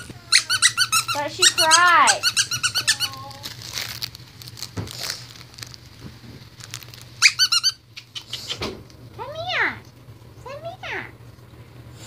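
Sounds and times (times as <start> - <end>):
puppy yelps: 7.2 - 8.6.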